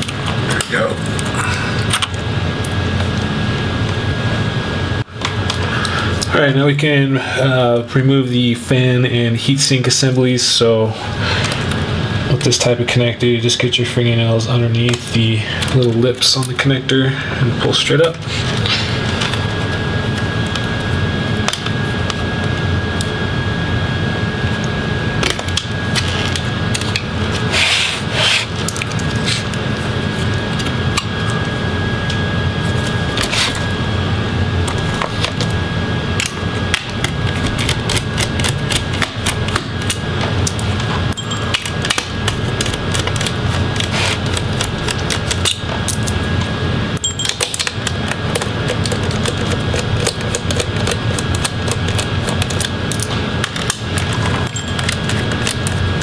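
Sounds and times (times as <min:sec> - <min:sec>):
steady hum: 0:00.0 - 0:56.0.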